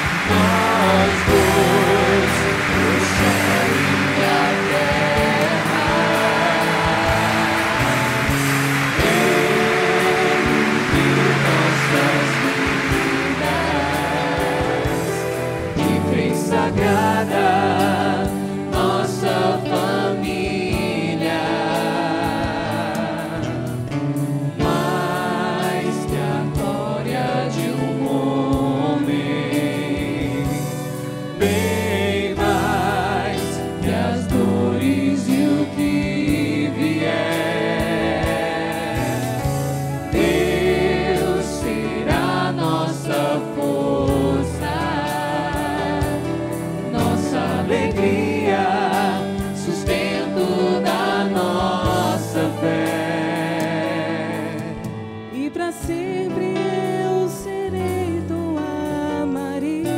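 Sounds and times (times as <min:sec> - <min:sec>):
church music group playing: 0:00.0 - 0:59.9.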